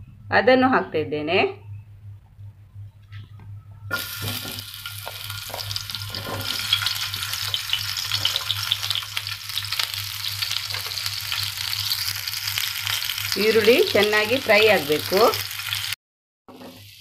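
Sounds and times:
onion sizzling in hot oil: 0:03.9 - 0:17.0.

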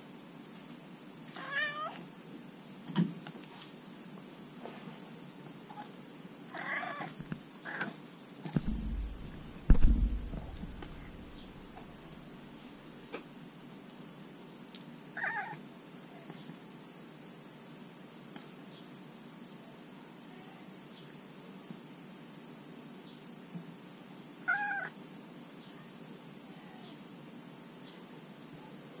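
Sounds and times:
cat meowing: 0:01.4 - 0:02.0, 0:24.5 - 0:24.9
loud low thump: 0:08.6 - 0:12.2.

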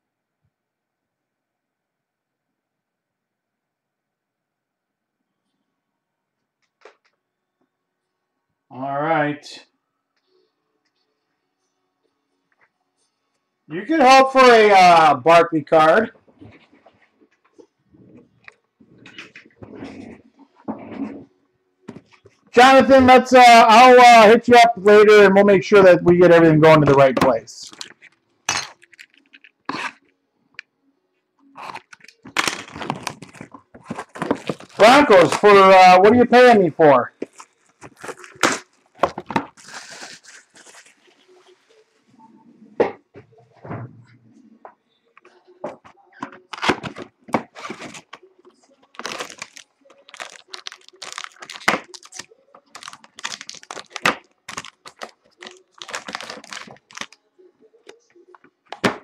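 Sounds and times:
shrink wrap crinkling: 0:27.0 - 0:30.0, 0:31.6 - 0:36.4, 0:37.2 - 0:41.9, 0:46.4 - 0:58.1.

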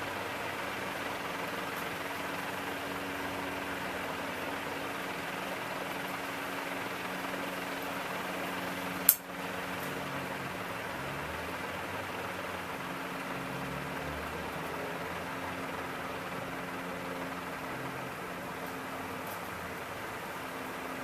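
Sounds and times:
ceiling fan humming: 0:00.0 - 0:21.0
sharp click: 0:09.1 - 0:09.3.

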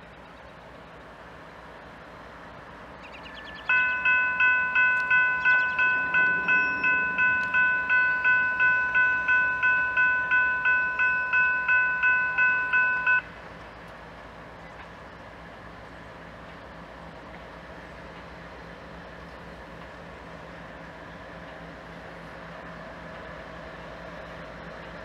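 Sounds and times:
railroad crossing bell ringing: 0:03.3 - 0:13.4.

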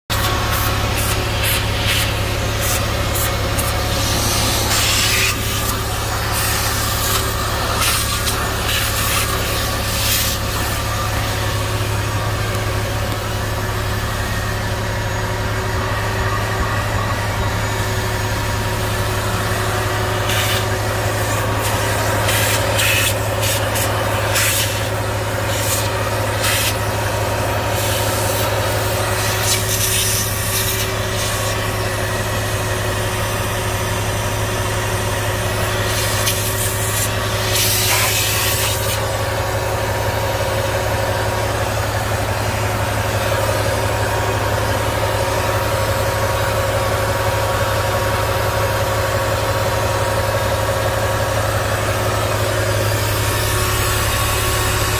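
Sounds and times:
vacuum nozzle suction bursts: 0:00.1 - 0:13.2, 0:20.2 - 0:26.8
vacuum cleaner running: 0:00.1 - 0:54.9
low hum: 0:02.1 - 0:22.6.

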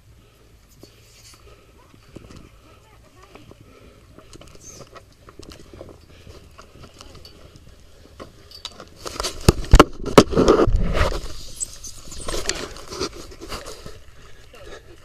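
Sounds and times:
rubbing against microphone: 0:09.0 - 0:14.0.

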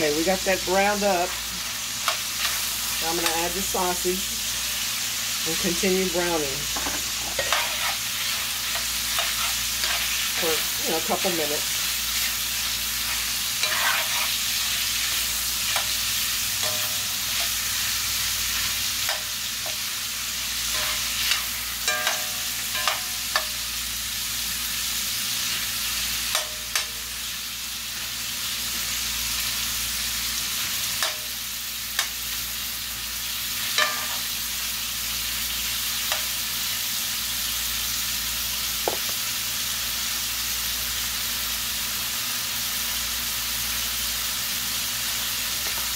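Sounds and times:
meat sizzling in a pot: 0:00.0 - 0:45.9
metal spoon scraping a pot: 0:07.3 - 0:08.0, 0:13.6 - 0:14.4.

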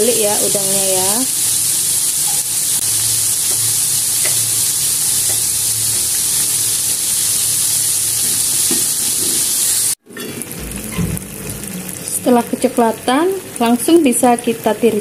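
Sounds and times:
deep-frying sizzle in oil: 0:00.0 - 0:10.0, 0:10.6 - 0:15.0.

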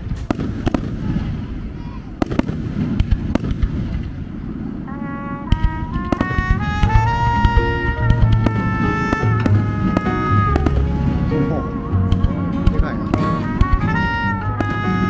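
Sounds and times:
fireworks popping and crackling: 0:00.0 - 0:15.0
music with long held notes: 0:04.9 - 0:15.0.

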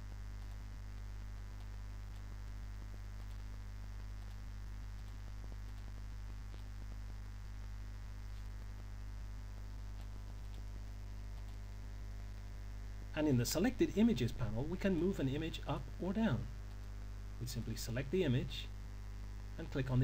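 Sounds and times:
electrical mains hum: 0:00.0 - 0:20.0
faint hiss: 0:00.0 - 0:20.0
faint clicks: 0:00.3 - 0:07.3, 0:08.2 - 0:11.8.

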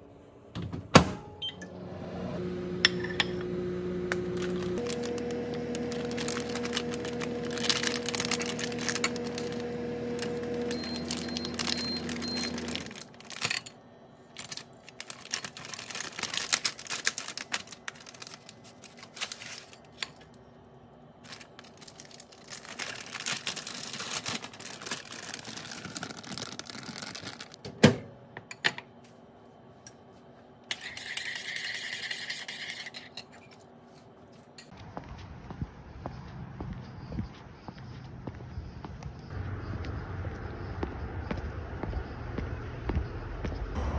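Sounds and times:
foil snack pouch crinkling: 0:04.4 - 0:13.7, 0:14.3 - 0:20.2, 0:21.2 - 0:27.6.

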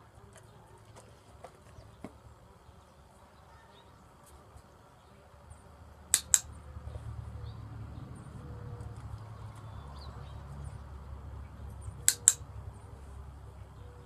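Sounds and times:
clicker clicks: 0:06.1 - 0:06.5, 0:12.0 - 0:12.4.

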